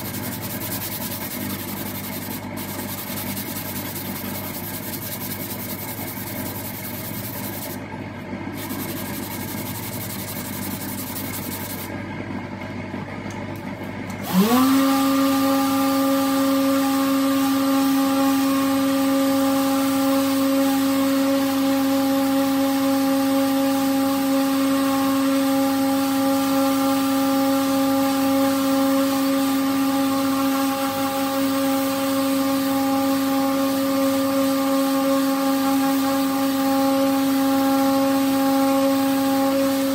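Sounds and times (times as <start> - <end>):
power tool motor whining: 14.2 - 16.8.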